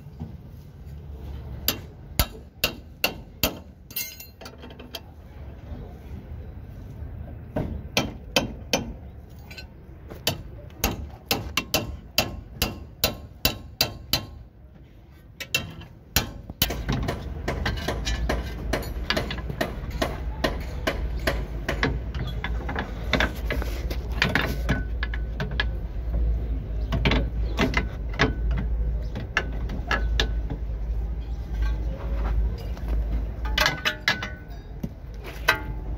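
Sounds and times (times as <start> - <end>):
sharp metal knocks: 1.7 - 4.5, 7.6 - 9.0, 10.2 - 14.4, 15.4 - 23.6, 33.4 - 35.9.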